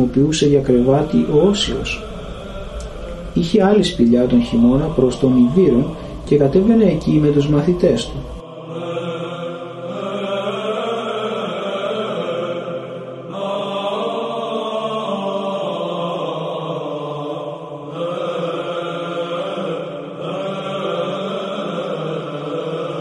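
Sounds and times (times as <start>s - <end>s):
steady low drone: 0.0s - 14.8s
chant singing on held notes: 0.0s - 23.0s
singer breaths: 5.9s - 6.3s.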